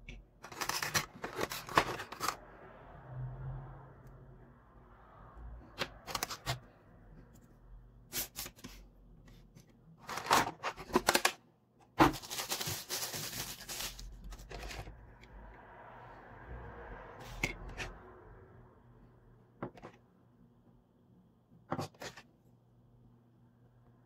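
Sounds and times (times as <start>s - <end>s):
plastic crackling: 0.4s - 2.4s, 12.0s - 14.9s.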